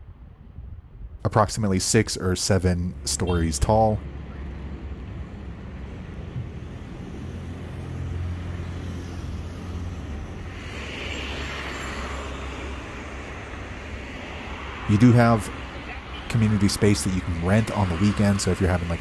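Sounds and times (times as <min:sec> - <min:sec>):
passing traffic rumble: 0:00.0 - 0:19.0
vehicle hiss: 0:07.4 - 0:19.0.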